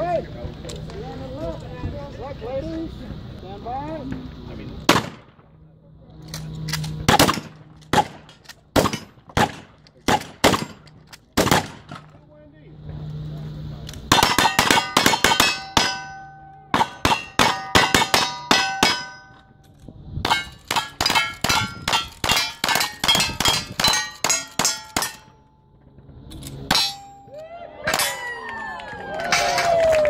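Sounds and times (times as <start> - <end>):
gunshots: 4.9 - 5.4, 7.0 - 10.8, 11.4 - 12.1, 14.1 - 19.1
steel target ringing: 14.1 - 19.6, 20.2 - 25.7, 26.6 - 27.3, 27.9 - 28.4.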